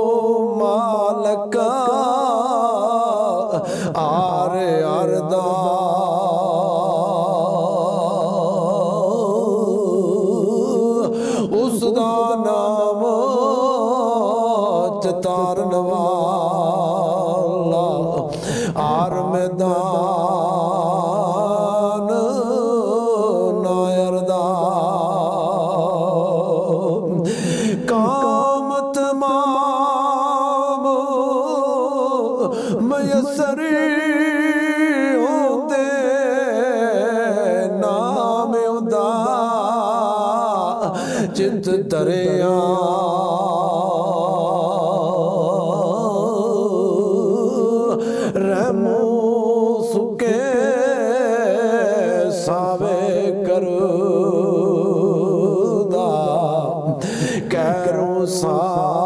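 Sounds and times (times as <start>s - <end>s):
man singing with vibrato: 0.0s - 59.0s
singer breathing: 3.5s - 4.0s, 11.1s - 11.6s, 18.3s - 18.8s, 27.2s - 27.9s, 32.5s - 32.8s, 40.8s - 41.4s, 48.0s - 48.4s, 56.9s - 57.5s.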